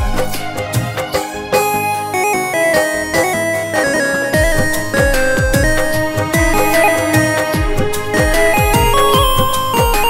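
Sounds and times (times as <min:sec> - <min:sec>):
keyboard melody: 0:01.1 - 0:10.0
electronic beat with deep bass: 0:02.6 - 0:10.0.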